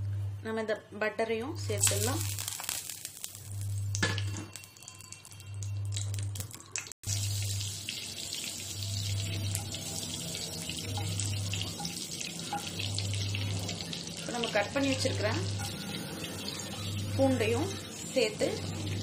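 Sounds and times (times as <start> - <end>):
butter sizzling in a frying pan: 1.8 - 3.9, 7.1 - 19.0
low hum: 8.6 - 19.0.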